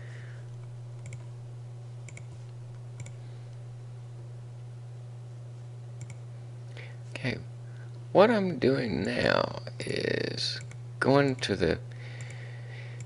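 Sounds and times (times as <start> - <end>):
low electrical hum: 0.0 - 13.0
computer mouse clicking: 1.0 - 1.3, 2.1 - 2.4, 3.0 - 3.2, 6.0 - 6.2.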